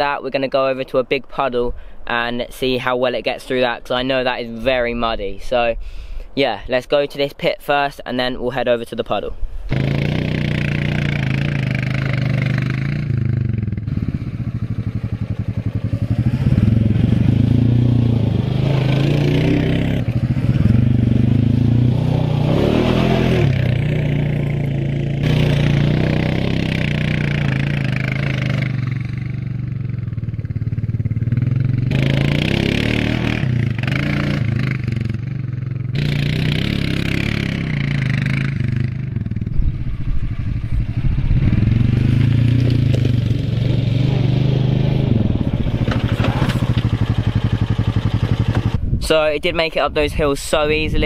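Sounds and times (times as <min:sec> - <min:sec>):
quad bike engine revving: 0:09.7 - 0:48.8.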